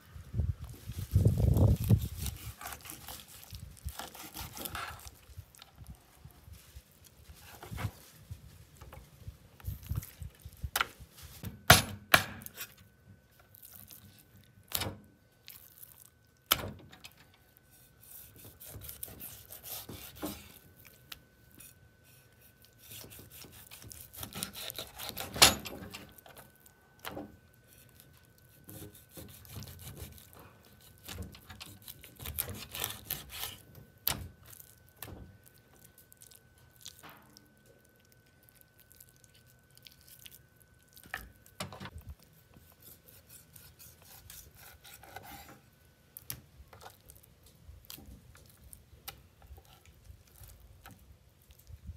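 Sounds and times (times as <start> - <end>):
wet slicing and scraping: 1.1 - 5.7, 17.7 - 25.4, 27.6 - 33.6, 42.1 - 45.6.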